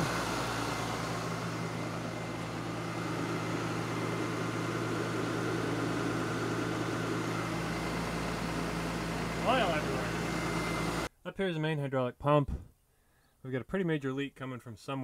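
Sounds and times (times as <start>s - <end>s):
engine idling: 0.0s - 11.1s.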